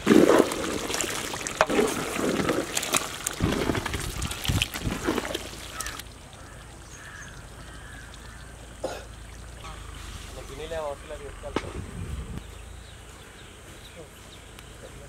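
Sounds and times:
ladle stirring: 0.0 - 6.6
curry bubbling in a pot: 0.0 - 9.6
quiet outdoor background: 0.0 - 15.0.

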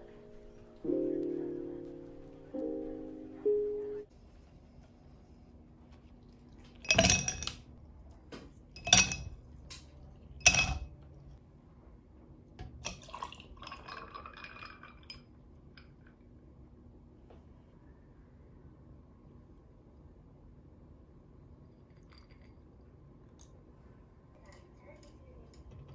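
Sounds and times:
ice cubes clinking in glass: 6.9 - 7.6, 8.8 - 9.4, 10.4 - 10.8, 12.8 - 15.2
milk pouring over ice: 12.8 - 15.4.

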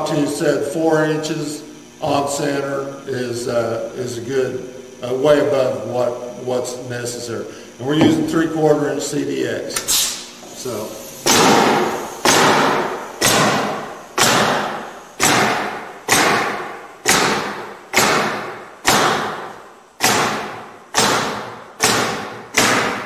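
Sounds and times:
pneumatic nail gun shots: 9.8 - 10.3, 11.2 - 23.0.

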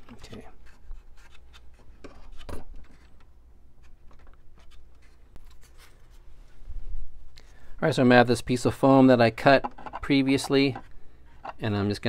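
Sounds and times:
light clicks and rubbing of tubing: 9.6 - 11.7.

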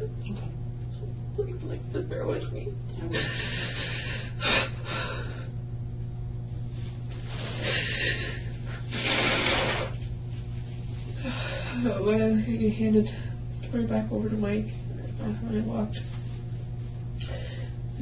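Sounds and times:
low hum: 0.0 - 18.0
person breathing deeply: 7.3 - 9.9, 17.2 - 17.9.

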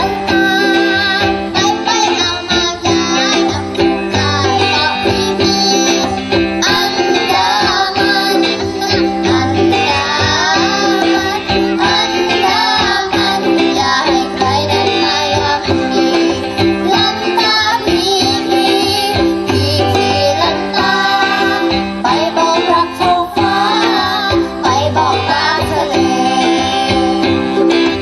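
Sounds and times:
drums: 0.0 - 28.0
keyboard: 0.0 - 28.0
person singing: 0.0 - 28.0
strummed acoustic guitar: 0.0 - 28.0.

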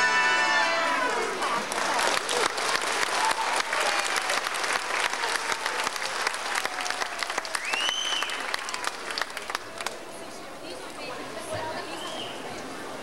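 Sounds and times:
audience applauding: 1.0 - 10.1.

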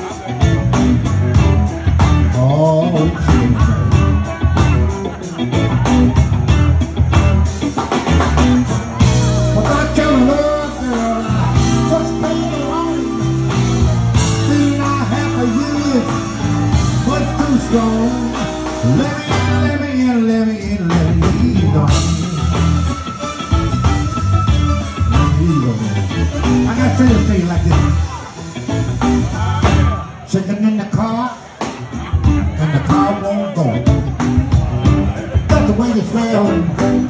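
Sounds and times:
blues band playing: 0.0 - 37.0
man singing into a microphone: 2.2 - 4.7, 9.2 - 23.0, 25.0 - 28.2, 32.4 - 33.9, 35.2 - 37.0.

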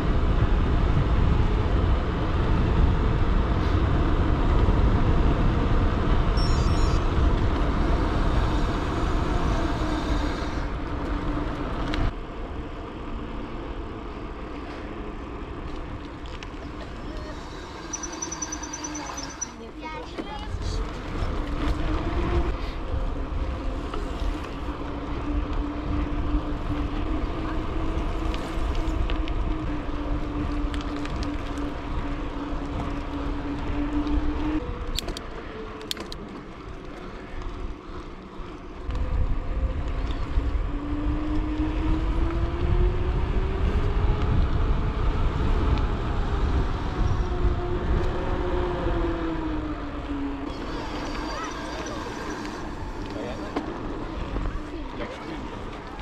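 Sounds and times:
wind buffeting microphone: 0.0 - 12.2, 36.4 - 56.0.

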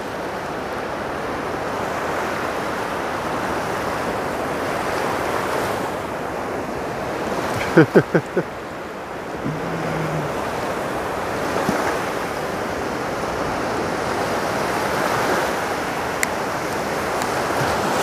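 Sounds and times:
small waves breaking on shore: 0.0 - 18.0
wind on microphone: 9.3 - 12.4.

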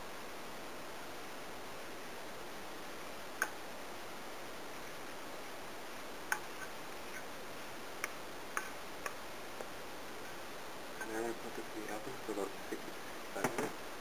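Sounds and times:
faint hiss: 0.0 - 14.0.

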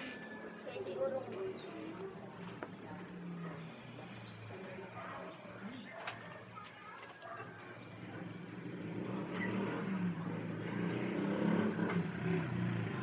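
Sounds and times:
vehicle engine running: 7.6 - 13.0.

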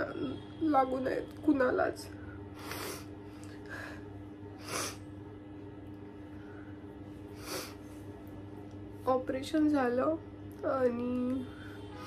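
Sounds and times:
faint steady hum: 0.0 - 12.0
woman crying and sniffling: 2.5 - 5.1, 7.3 - 8.1.

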